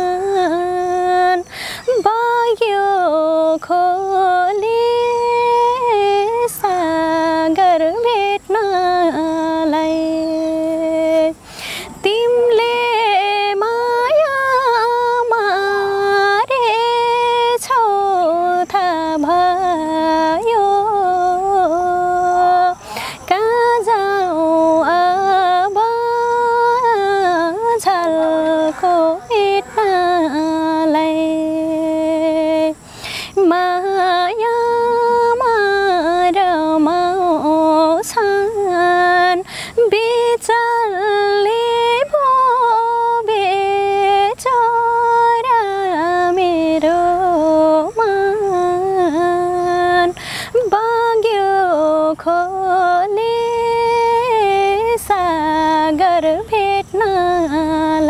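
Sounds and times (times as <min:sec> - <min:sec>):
woman singing solo: 0:12.0 - 0:58.0.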